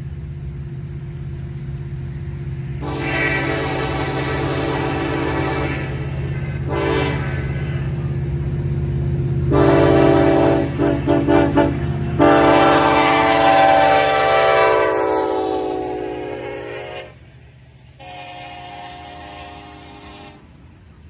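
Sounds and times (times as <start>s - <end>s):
diesel engine rumble: 0.0s - 21.0s
locomotive air horn blasts: 2.8s - 7.9s, 9.5s - 17.2s, 18.0s - 20.7s.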